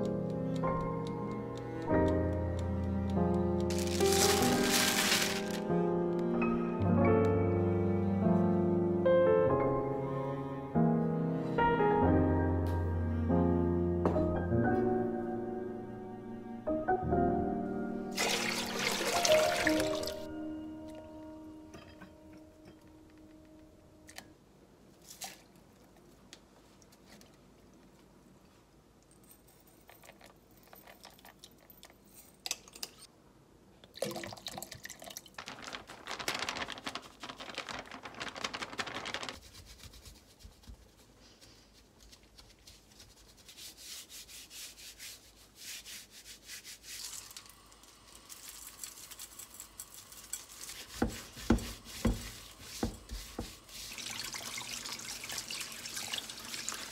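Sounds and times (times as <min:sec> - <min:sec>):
hands rubbing meat with flour: 0:03.7 - 0:05.7, 0:35.9 - 0:47.4, 0:48.4 - 0:54.6.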